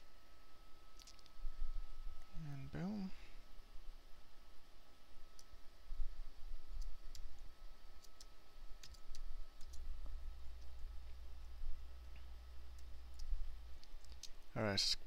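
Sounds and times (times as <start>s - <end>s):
low steady hum: 0.0s - 15.0s
computer mouse clicking: 6.8s - 7.4s, 8.0s - 9.9s, 12.7s - 14.4s.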